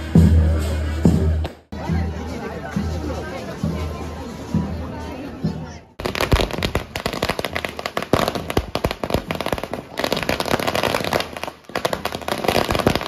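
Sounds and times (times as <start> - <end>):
firecrackers crackling: 6.0 - 13.0.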